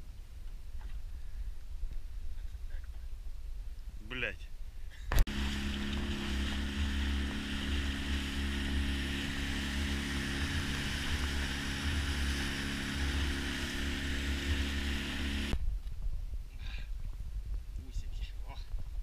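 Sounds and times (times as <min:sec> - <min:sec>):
outboard motor running: 0:05.1 - 0:15.6
water rushing along hull: 0:05.3 - 0:15.6.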